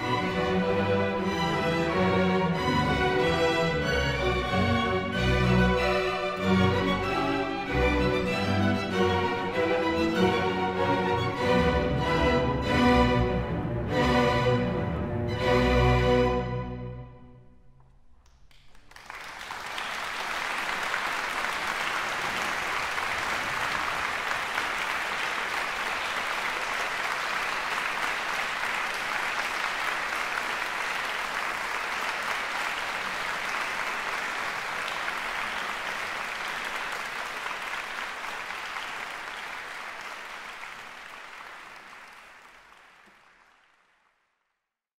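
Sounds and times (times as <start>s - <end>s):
audience applauding: 18.3s - 44.4s.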